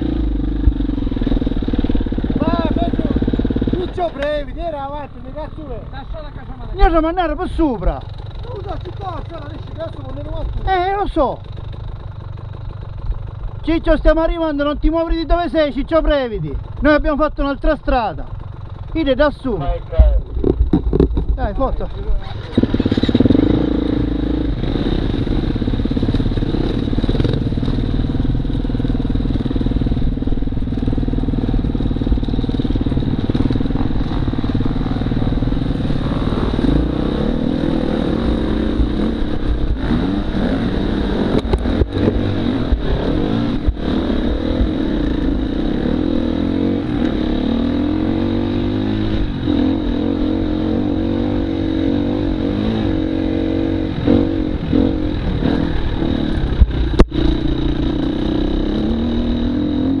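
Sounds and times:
motorcycle engine revving: 0:00.0 - 1:00.0
sharp knocks: 0:20.0 - 0:21.4.

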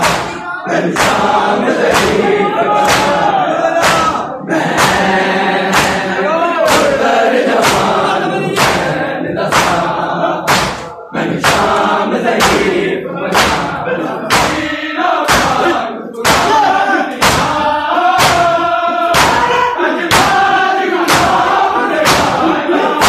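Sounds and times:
hands slapping chests in unison: 0:00.0 - 0:23.0
men chanting: 0:00.0 - 0:23.0.

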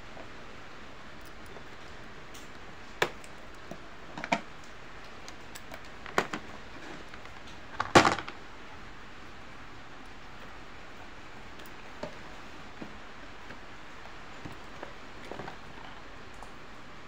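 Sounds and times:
plastic clatter: 0:04.1 - 0:04.5, 0:05.7 - 0:08.4
plastic clicks and knocks: 0:04.2 - 0:04.5, 0:05.6 - 0:06.5, 0:07.1 - 0:08.4.

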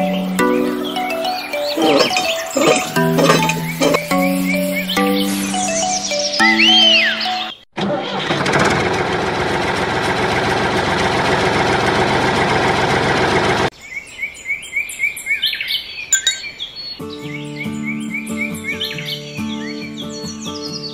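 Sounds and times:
birds chirping: 0:00.0 - 0:07.6, 0:13.8 - 0:17.1.

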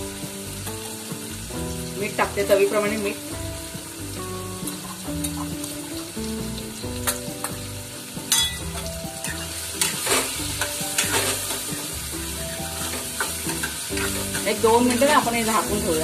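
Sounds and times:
food sizzling in a pan: 0:00.0 - 0:16.0
spoon scraping and knocking pan: 0:07.0 - 0:15.2.

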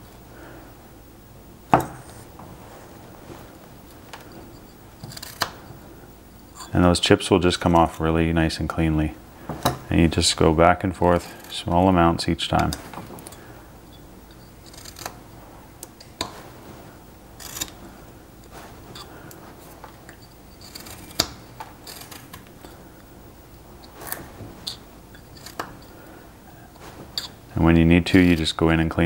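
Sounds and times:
knife cutting wood chips: 0:05.0 - 0:05.7, 0:20.6 - 0:22.4.

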